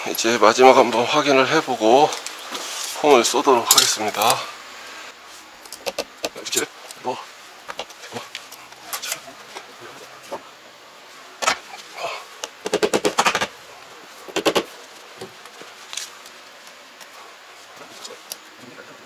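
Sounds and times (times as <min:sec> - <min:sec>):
sharp knocks: 0:12.6 - 0:13.5, 0:14.3 - 0:14.7.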